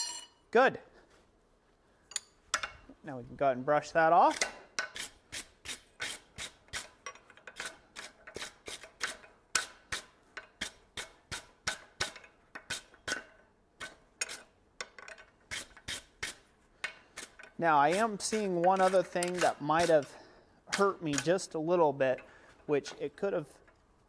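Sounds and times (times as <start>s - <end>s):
wire brush scrubbing steel: 4.2s - 14.6s, 17.1s - 21.5s.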